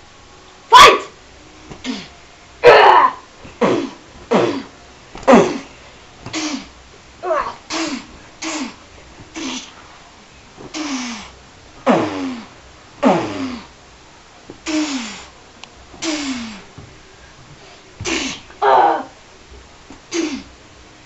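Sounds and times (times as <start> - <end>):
child making fight sounds: 0.7 - 1.1, 2.6 - 3.2, 18.0 - 19.1.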